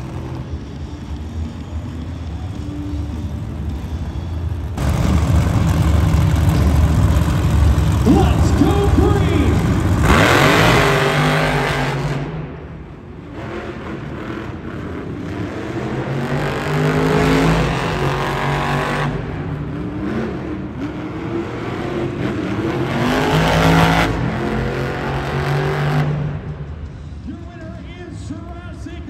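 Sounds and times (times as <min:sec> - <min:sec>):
truck engine revving hard: 0:04.7 - 0:12.6, 0:13.2 - 0:26.5.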